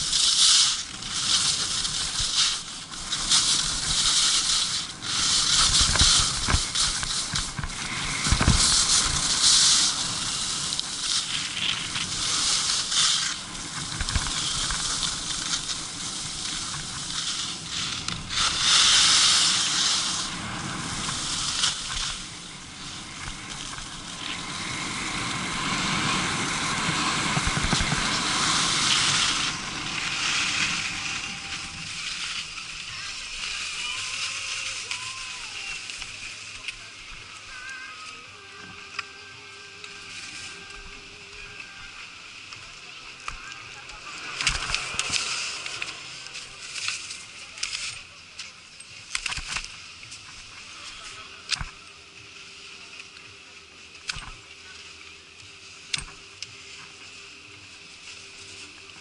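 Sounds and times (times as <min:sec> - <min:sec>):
skis hissing over snow: 0:00.0 - 0:59.0
wind buffeting microphone: 0:00.9 - 0:33.5.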